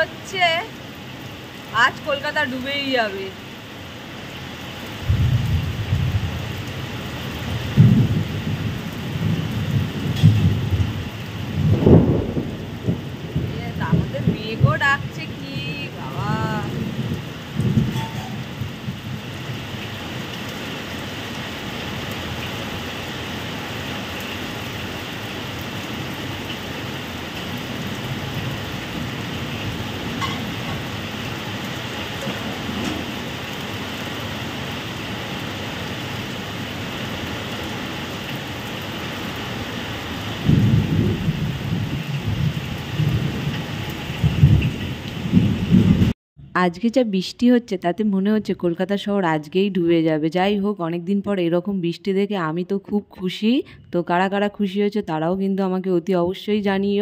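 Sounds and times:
heavy rain pouring: 0.0 - 46.2
low rumbles of thunder: 5.0 - 19.9, 27.4 - 34.3, 40.2 - 46.2.

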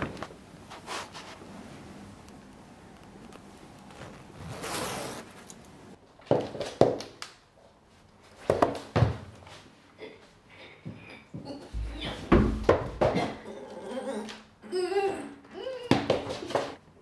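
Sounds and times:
zipper drawn up: 3.9 - 5.6.

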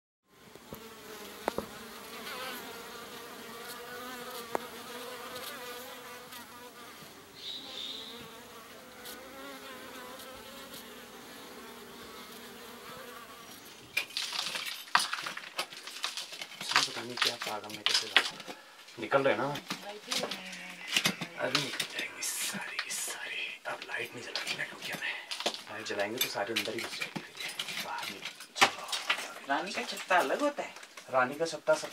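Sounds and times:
bees buzzing: 0.4 - 14.2
sharp knocks and clattering: 13.9 - 18.6.

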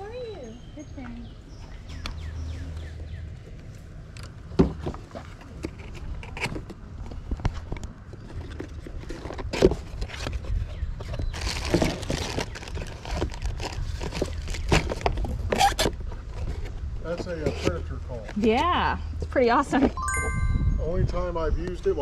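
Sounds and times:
wind rumble on microphone: 5.6 - 18.3, 19.8 - 22.0.

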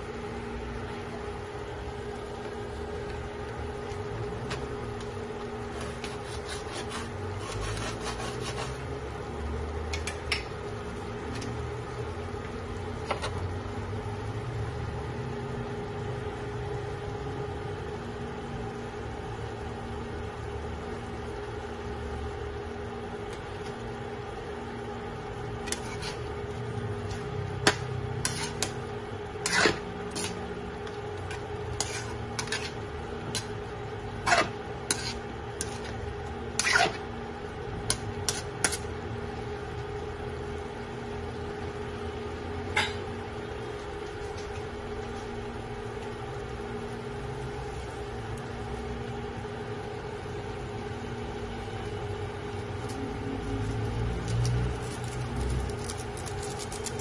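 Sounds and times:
mechanical hum: 0.0 - 57.0
spatula scraping a wok: 5.7 - 8.9, 25.6 - 26.4, 28.2 - 28.8, 29.4 - 30.5, 31.2 - 33.6, 34.2 - 37.1.

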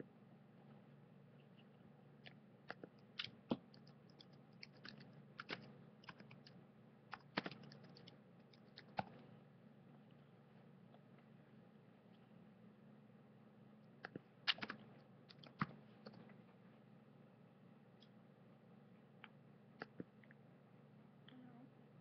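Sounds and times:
low steady hum: 0.0 - 22.0
faint clicking and tapping: 1.3 - 9.3.

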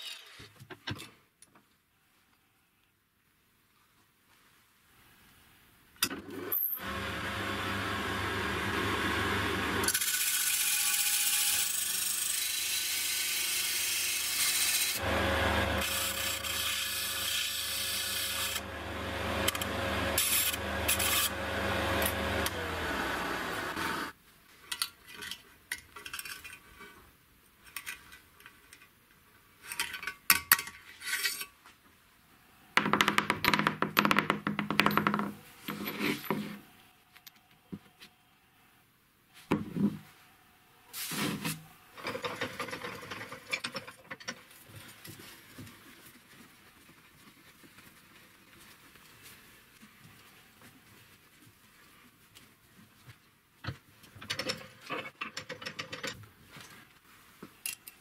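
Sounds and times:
sander motor hum: 15.0 - 16.5, 18.3 - 24.1
metal grinding on sander disc: 18.1 - 24.1.

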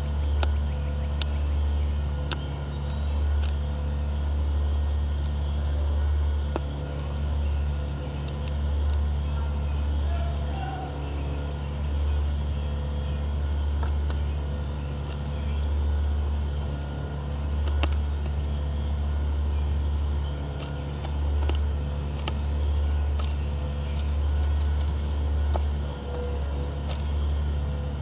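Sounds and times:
bird pecking seed shells: 2.2 - 3.9, 4.8 - 9.2, 13.7 - 19.1, 20.4 - 27.3.

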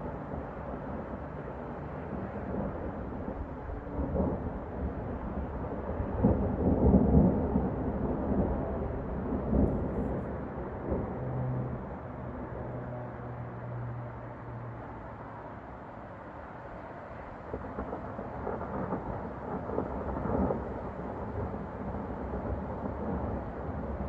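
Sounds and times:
freeway traffic hum: 0.0 - 24.0
rolling thunder: 0.1 - 12.2, 17.2 - 24.0.

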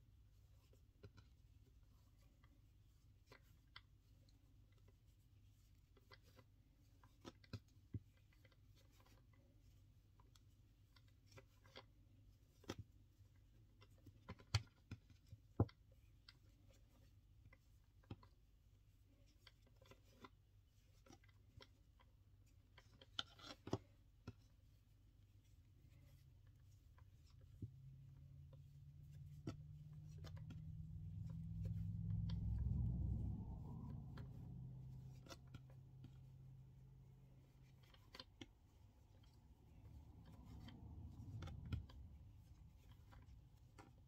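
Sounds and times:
low steady hum: 0.0 - 44.0
cord knotting soft taps and clicks: 19.3 - 44.0.

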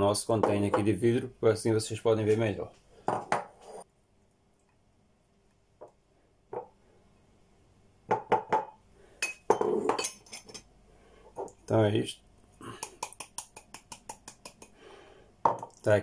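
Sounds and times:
glass jar and bowl clinking: 9.2 - 10.7.

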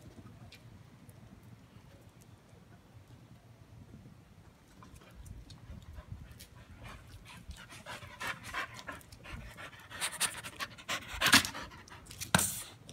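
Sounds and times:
small dog panting: 4.8 - 12.2.

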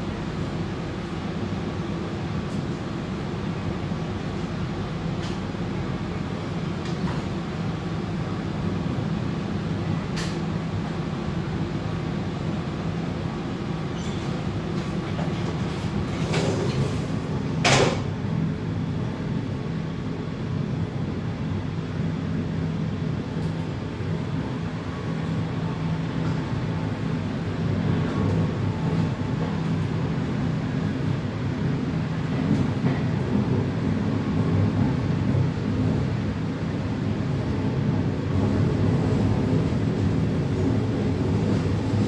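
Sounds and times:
train rolling rumble and hum: 0.0 - 42.0.

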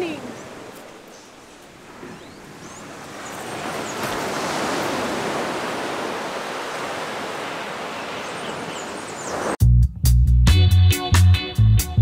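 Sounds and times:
ocean waves breaking on beach: 0.0 - 9.6.

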